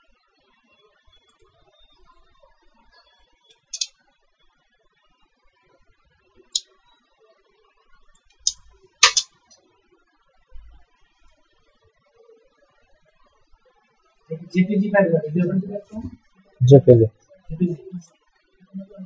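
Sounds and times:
mouse and keyboard clicks: 0:08.4 - 0:09.3.

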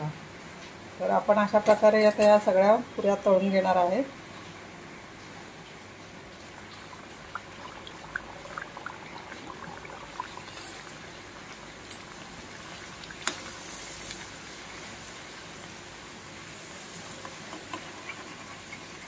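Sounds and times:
dough deep-frying in oil: 0:00.0 - 0:19.0
crackling pops: 0:11.8 - 0:14.4.

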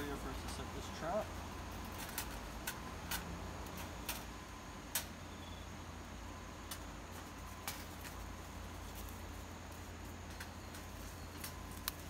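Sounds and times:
wire cage trap clicks and snaps: 0:01.8 - 0:04.3, 0:04.9 - 0:05.2, 0:10.3 - 0:12.0.

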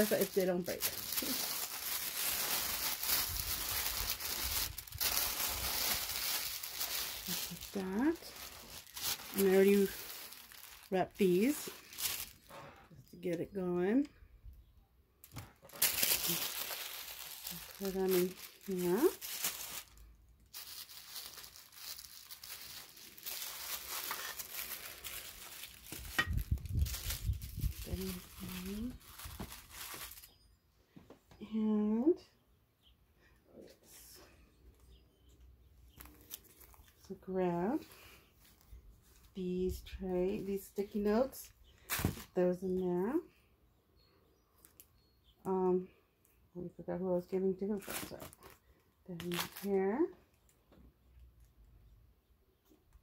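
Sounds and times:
tissue paper crinkling: 0:00.0 - 0:12.6, 0:15.7 - 0:30.3, 0:36.0 - 0:37.0, 0:47.8 - 0:48.6, 0:49.2 - 0:49.8.

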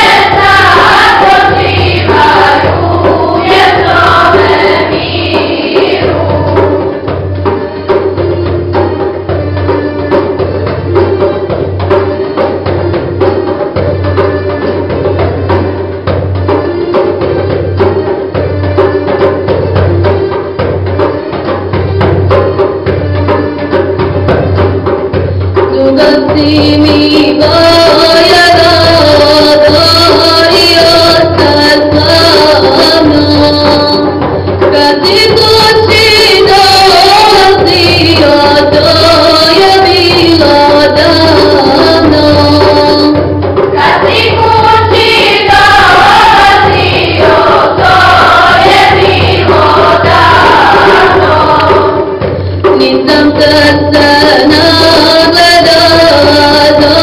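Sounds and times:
choir singing devotional song: 0:00.0 - 0:07.2, 0:27.2 - 0:53.4
hand drum beat: 0:00.0 - 0:57.0.

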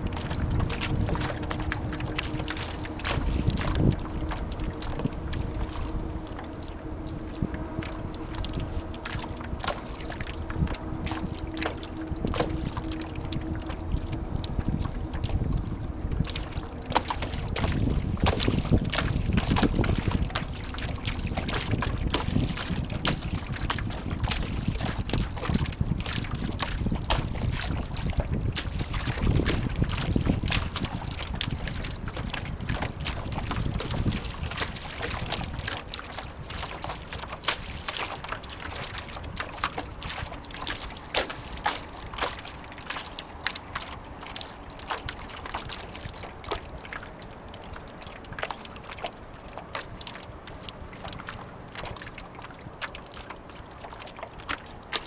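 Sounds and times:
water slapping against hull: 0:00.0 - 0:55.0
wind buffeting microphone: 0:00.0 - 0:55.0.

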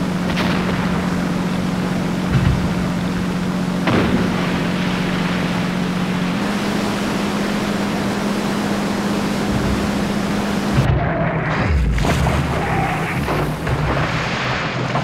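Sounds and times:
surf washing: 0:00.0 - 0:10.9
boat engine humming: 0:00.0 - 0:15.0
wind: 0:00.0 - 0:15.0.

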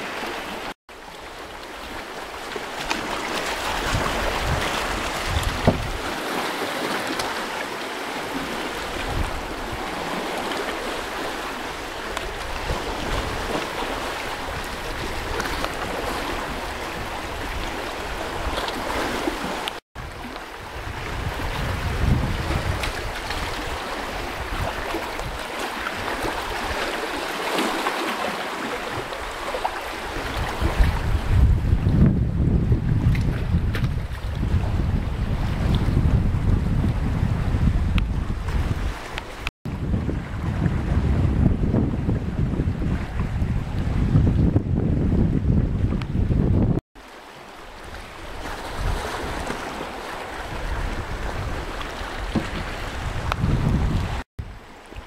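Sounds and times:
waves lapping and splashing: 0:00.0 - 0:55.0
wind rumble on microphone: 0:01.2 - 0:06.4, 0:08.2 - 0:26.9, 0:28.8 - 0:46.8, 0:47.8 - 0:55.0.

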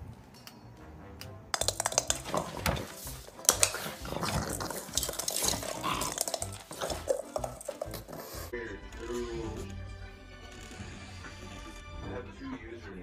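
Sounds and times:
sharp clicks and clatters: 0:01.6 - 0:08.1
dog making noises: 0:02.6 - 0:08.5.

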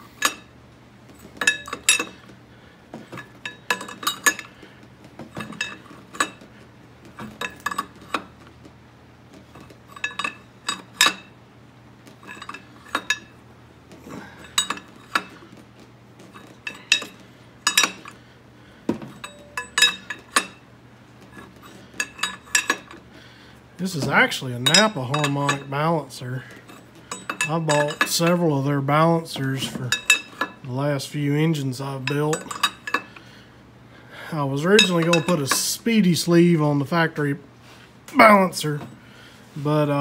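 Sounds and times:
wrench clinking on a nut: 0:16.4 - 0:18.2, 0:19.1 - 0:20.6, 0:26.6 - 0:28.3, 0:34.7 - 0:35.7.

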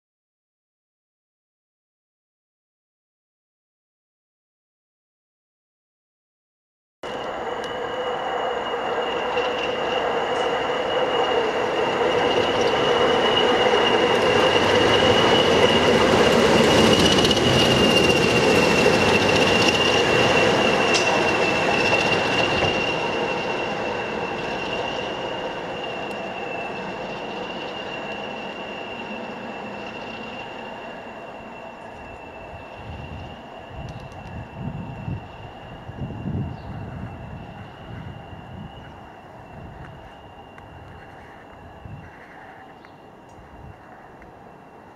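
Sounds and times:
diesel locomotive engine: 0:07.0 - 0:44.9
high turbocharger whistle: 0:07.1 - 0:42.2.

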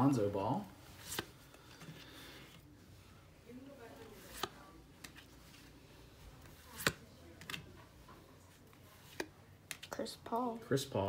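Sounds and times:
cards clicking and snapping: 0:06.5 - 0:07.7, 0:09.0 - 0:10.0.

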